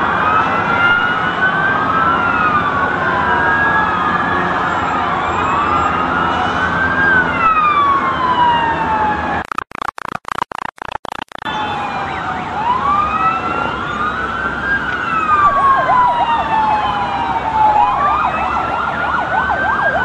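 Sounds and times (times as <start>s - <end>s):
emergency sirens wailing: 0.0s - 9.5s, 11.0s - 20.0s
street noise: 0.0s - 20.0s.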